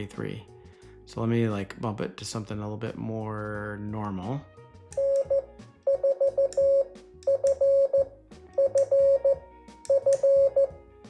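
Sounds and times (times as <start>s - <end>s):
morse code beeps: 5.0s - 10.8s.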